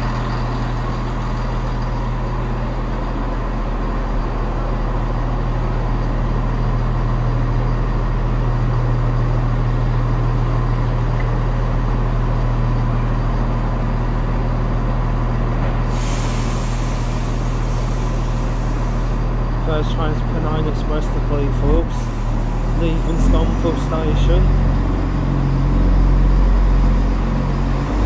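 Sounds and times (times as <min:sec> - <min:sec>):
diesel engines humming: 0:00.0 - 0:28.0
compressed air hiss: 0:15.8 - 0:19.3.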